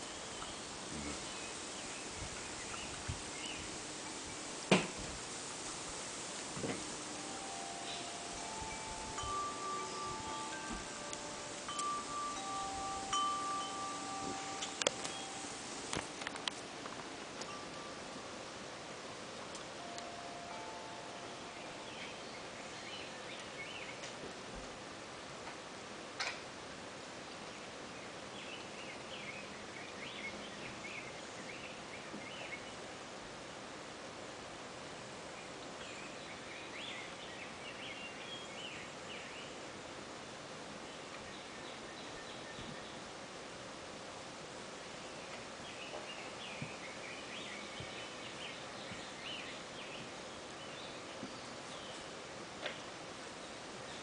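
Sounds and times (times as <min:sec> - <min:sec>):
outdoor background noise: 0:00.0 - 0:54.0
wind chimes ringing: 0:06.5 - 0:18.6, 0:19.7 - 0:22.5.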